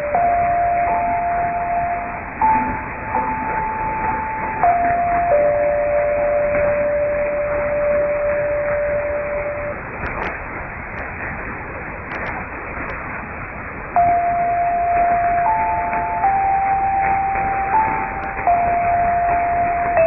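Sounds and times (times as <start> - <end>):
electronic interval signal tones: 0.0 - 10.4, 13.9 - 20.0
static clicks: 0.0 - 20.0
radio hiss: 11.8 - 13.0.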